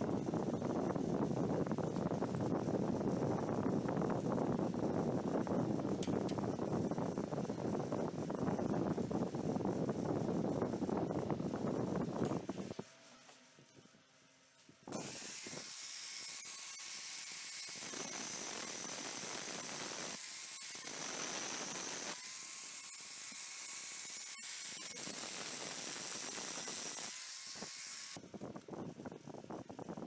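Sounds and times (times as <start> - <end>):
angle grinder cutting steel: 14.9 - 28.2.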